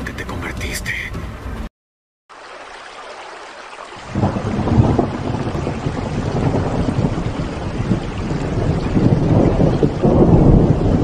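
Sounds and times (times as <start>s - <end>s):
heavy rain: 2.3s - 11.0s
thunder rumbling: 4.0s - 11.0s.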